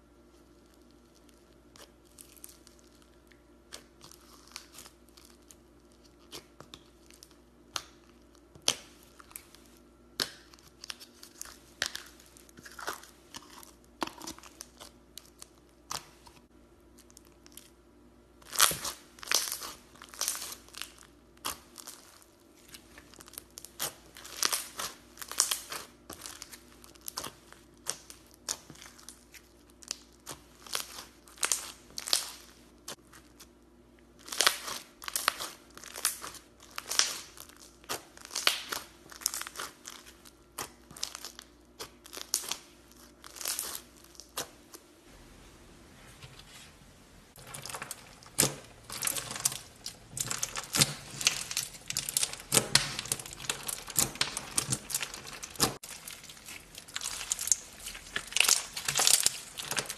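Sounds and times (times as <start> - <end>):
crunchy slime squeezed by hand: 18.4 - 33.5, 34.2 - 44.7, 47.4 - 59.9.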